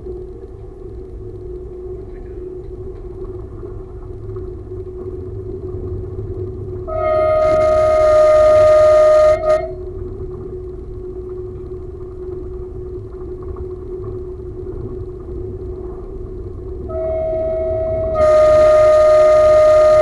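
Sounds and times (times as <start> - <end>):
railcar rumble on track: 0.0 - 20.0
train horn blast: 6.9 - 9.8, 16.9 - 20.0.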